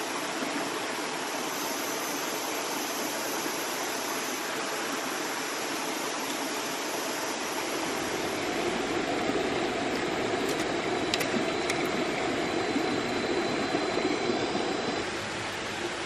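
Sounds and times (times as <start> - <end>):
stream water rushing: 0.0 - 16.0.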